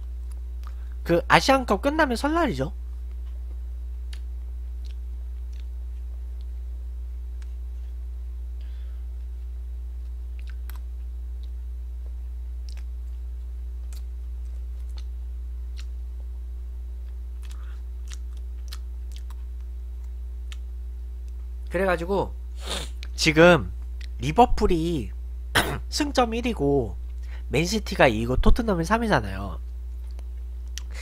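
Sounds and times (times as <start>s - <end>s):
low electrical hum: 0.0s - 31.0s
chewing and mouth sounds: 3.1s - 6.7s, 9.2s - 11.6s, 12.6s - 16.0s, 17.0s - 21.5s, 23.9s - 24.2s, 29.9s - 31.0s.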